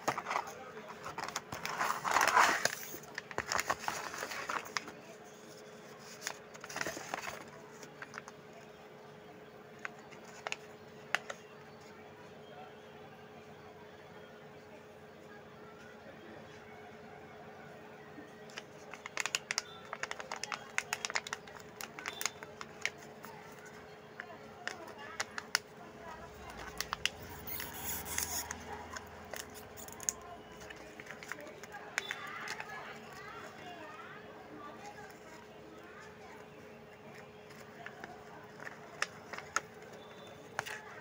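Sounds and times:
packaging clicks and rustles: 0:00.0 - 0:08.5, 0:09.8 - 0:11.4, 0:18.4 - 0:33.8, 0:34.8 - 0:41.0
snack pouch crinkling: 0:18.9 - 0:23.1, 0:24.7 - 0:33.3.

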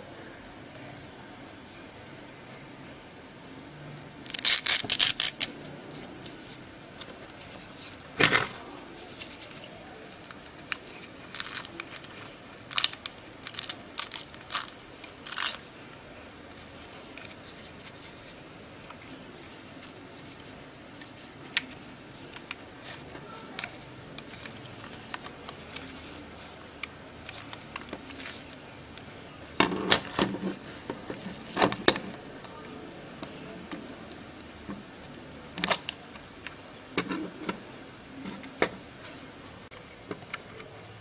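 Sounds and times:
wrist strap crinkling: 0:04.2 - 0:06.6, 0:09.0 - 0:15.8, 0:31.2 - 0:31.9.

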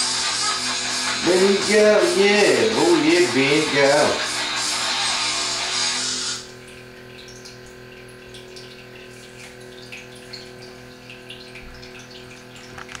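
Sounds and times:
guitar music: 0:00.1 - 0:06.4
low electrical hum: 0:06.4 - 0:13.0.

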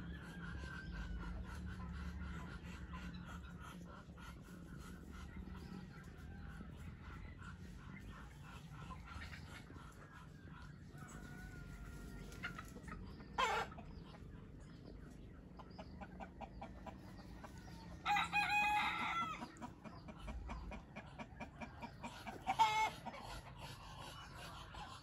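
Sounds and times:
rooster crowing: 0:18.0 - 0:19.4.

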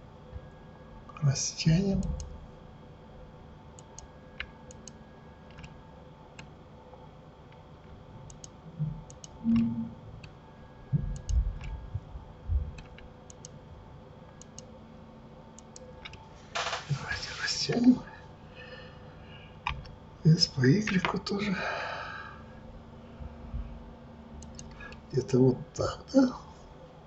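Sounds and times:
mouse and keyboard clicking: 0:03.8 - 0:05.7, 0:08.3 - 0:08.5, 0:09.1 - 0:10.4, 0:11.2 - 0:11.8, 0:12.8 - 0:13.6, 0:14.4 - 0:14.7, 0:24.4 - 0:24.8
dull low thumps: 0:10.9 - 0:12.8.

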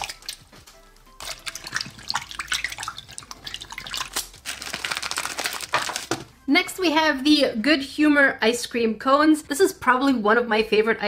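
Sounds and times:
water dripping: 0:00.0 - 0:05.0.

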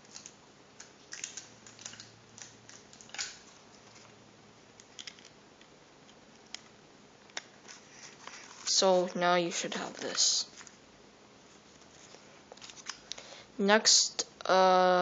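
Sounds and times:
paper and tape clicks: 0:00.0 - 0:03.5.

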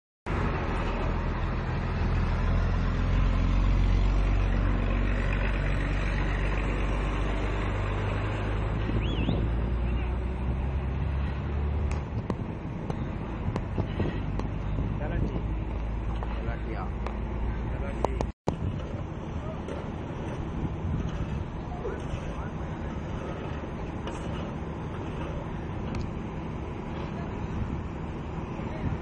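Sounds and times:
ship engine droning: 0:18.5 - 0:29.0.

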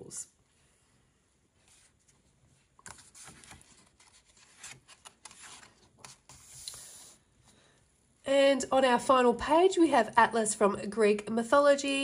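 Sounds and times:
paper rustling and scraping: 0:01.6 - 0:07.2.

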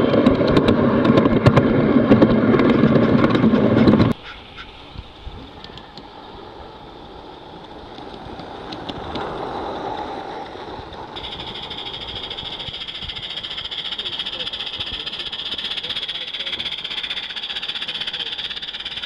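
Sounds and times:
rapid pulsing hiss: 0:10.8 - 0:19.0
steam locomotive hissing: 0:11.2 - 0:19.0.

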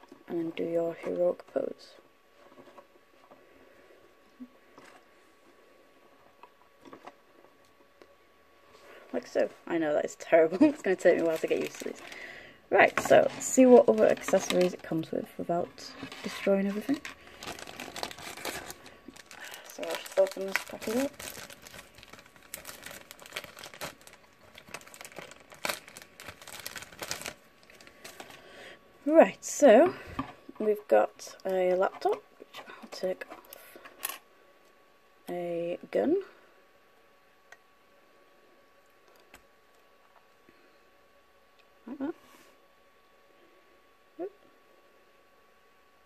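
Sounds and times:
thin plastic crinkling: 0:10.4 - 0:28.5.

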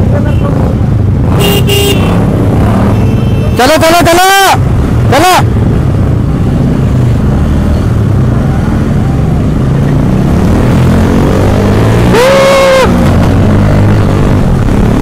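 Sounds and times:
motorcycle engines rumbling: 0:00.0 - 0:15.0
vehicle horn: 0:01.4 - 0:02.2, 0:02.9 - 0:03.8.

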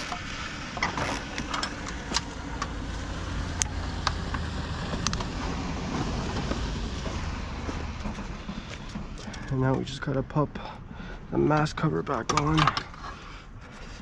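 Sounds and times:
sharp clicks and rustles: 0:00.0 - 0:02.8, 0:11.5 - 0:14.0.

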